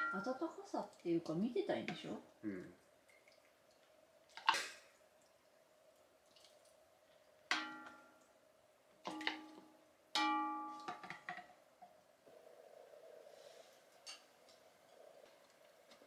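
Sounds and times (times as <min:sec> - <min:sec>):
struck ringing tones: 0:10.2 - 0:10.9.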